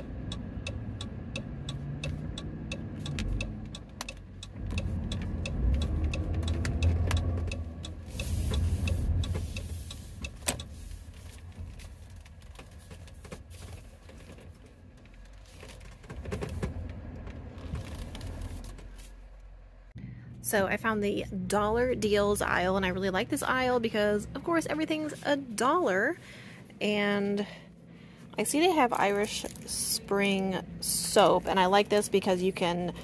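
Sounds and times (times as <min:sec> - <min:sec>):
turn signal ticking: 0:00.0 - 0:13.4
engine and road rumble: 0:00.0 - 0:33.0.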